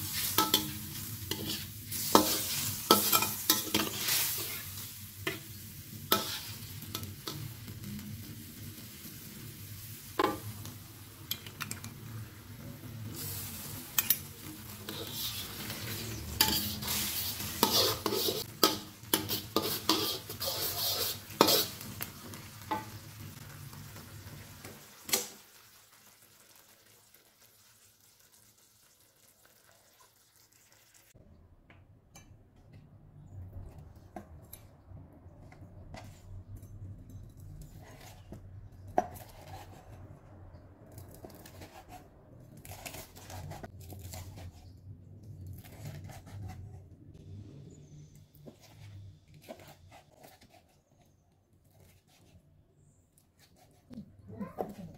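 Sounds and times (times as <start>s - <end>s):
metal spoon scraping a wok: 0.0s - 7.5s, 13.2s - 22.0s
garlic and onion sizzling: 0.0s - 31.2s, 37.3s - 44.8s
spoon clattering on pan: 0.4s - 0.8s.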